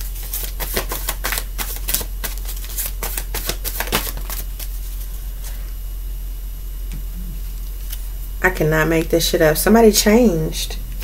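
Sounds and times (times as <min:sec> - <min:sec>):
cards being shuffled: 0:00.0 - 0:05.0.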